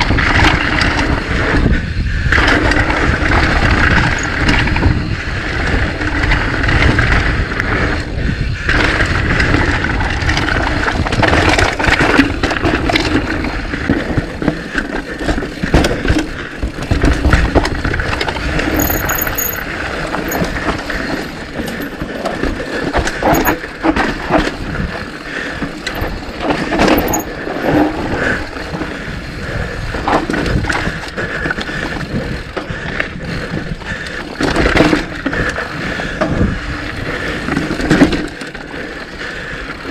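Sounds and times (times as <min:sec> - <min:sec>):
bike frame and chain rattling: 0:00.0 - 0:39.9
bike tyres on dirt trail: 0:00.0 - 0:39.9.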